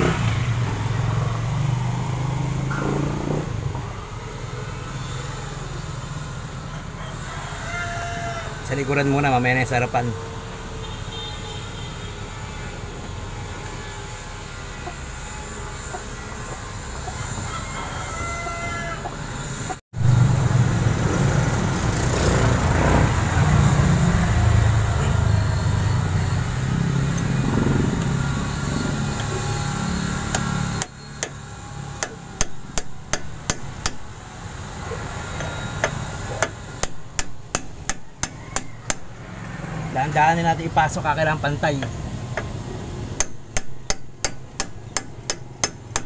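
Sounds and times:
hammer tapping metal: 32.0 - 34.1, 35.4 - 39.1, 43.2 - 46.0.

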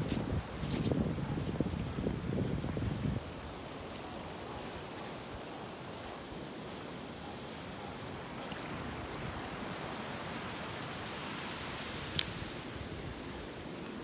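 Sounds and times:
rushing water: 2.0 - 14.0.

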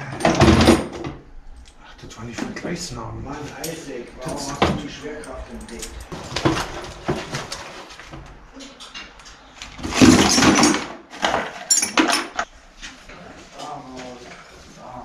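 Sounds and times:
metal parts clattering into crate: 0.0 - 1.1, 3.6 - 12.5.

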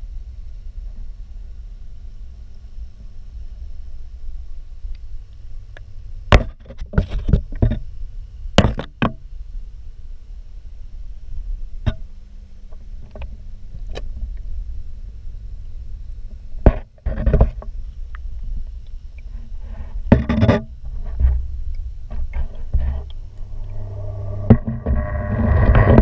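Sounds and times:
muffled underwater rumble: 9.5 - 26.0.

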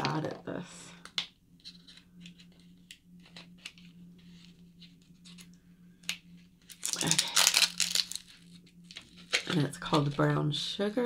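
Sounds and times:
package being opened by hand: 5.3 - 9.7.

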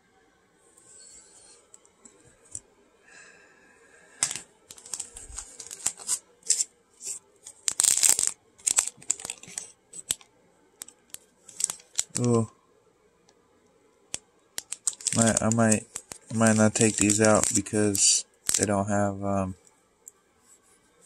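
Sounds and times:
packaging tearing rip: 4.2 - 10.2, 10.8 - 12.4, 14.6 - 18.7
plastic bag crinkling: 4.2 - 12.5, 14.6 - 18.8.

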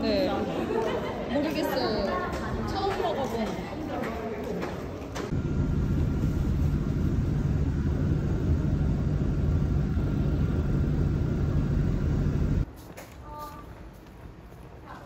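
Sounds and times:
bus engine and road rumble: 5.3 - 12.7.

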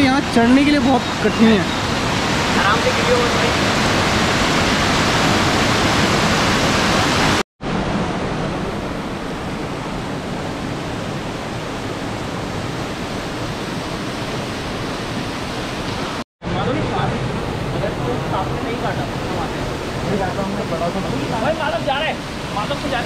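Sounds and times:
stream water rushing over rocks: 0.0 - 23.0.

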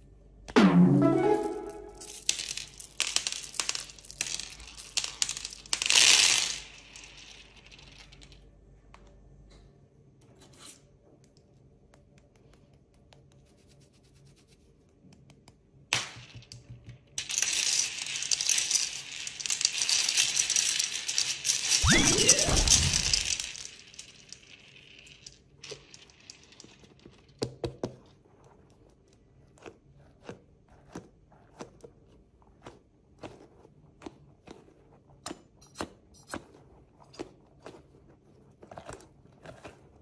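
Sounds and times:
small hard objects rattling: 2.0 - 8.4, 17.2 - 27.5.

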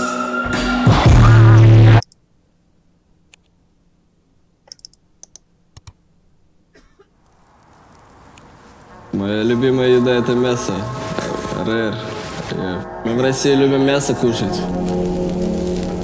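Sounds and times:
hip-hop music with heavy bass: 0.5 - 2.0
sharp clicks: 2.0 - 2.2, 4.6 - 6.0
soft hiss: 2.1 - 12.8, 14.0 - 16.0.

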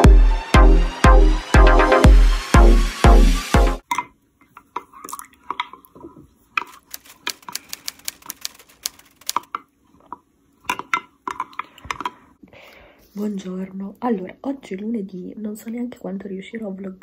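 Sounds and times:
electronic dance music: 0.0 - 3.8.

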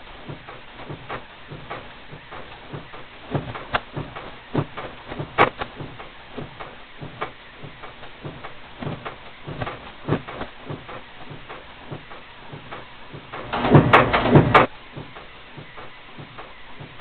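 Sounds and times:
press clattering stroke with knocks: 0.2 - 17.0
punch machine clicking: 12.7 - 15.2.

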